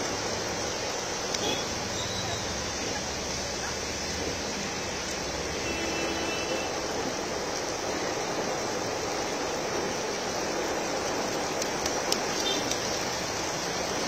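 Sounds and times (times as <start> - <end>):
heavy rain pouring: 0.0 - 14.0.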